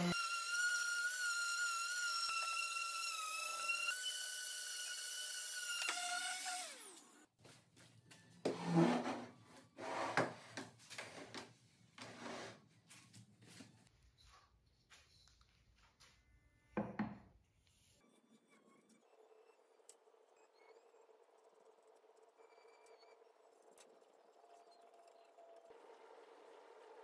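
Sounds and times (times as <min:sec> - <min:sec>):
electric sander whining: 0:00.0 - 0:07.0.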